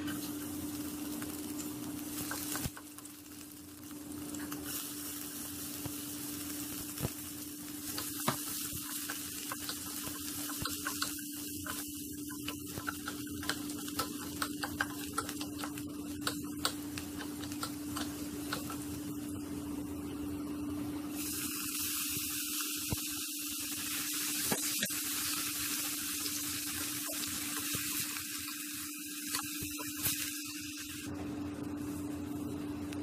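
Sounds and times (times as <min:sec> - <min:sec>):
food sizzling in oil: 0:00.0 - 0:32.8.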